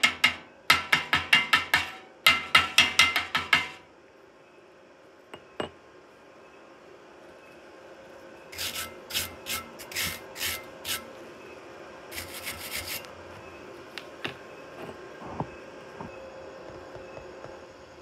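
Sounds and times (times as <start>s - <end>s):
wire brush scrubbing steel: 8.5s - 11.1s, 12.1s - 13.1s.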